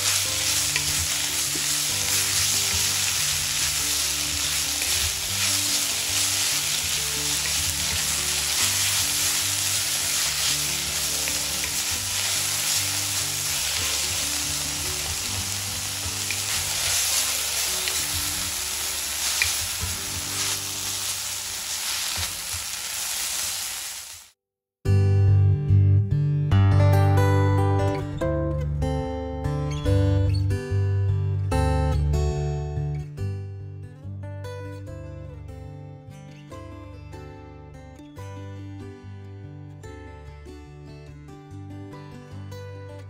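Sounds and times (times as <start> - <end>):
leaves sizzling in oil: 0.0 - 24.4.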